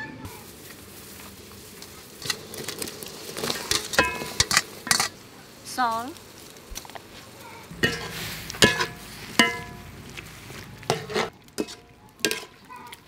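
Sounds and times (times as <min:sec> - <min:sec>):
low frying hiss: 0:00.2 - 0:13.0
metal utensil clanking on wok: 0:03.7 - 0:05.2, 0:07.7 - 0:09.9, 0:10.8 - 0:12.6.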